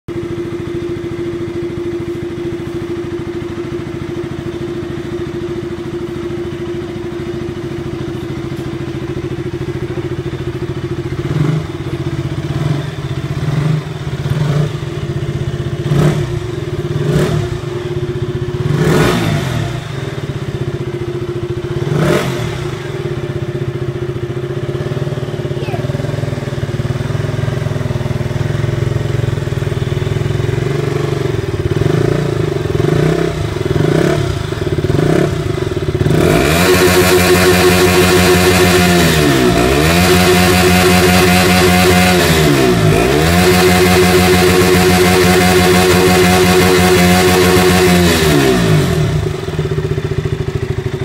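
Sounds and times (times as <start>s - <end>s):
motorcycle engine idling: 0.1s - 51.0s
motorcycle engine revving: 0.1s - 51.0s.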